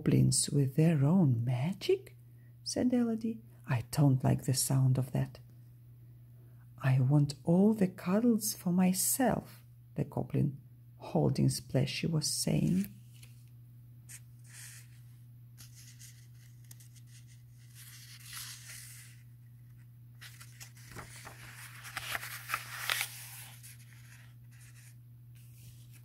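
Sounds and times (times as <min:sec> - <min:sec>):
steady low hum: 0:00.2 - 0:26.0
book pages rustling: 0:12.7 - 0:26.0.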